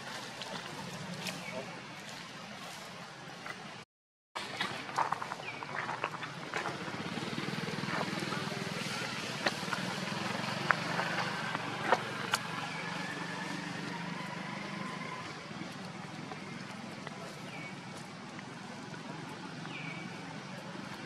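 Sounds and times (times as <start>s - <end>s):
low engine hum: 5.2s - 21.0s.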